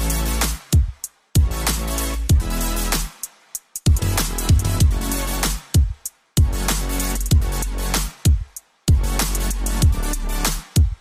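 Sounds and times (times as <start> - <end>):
electronic music with kick drums: 0.0 - 11.0.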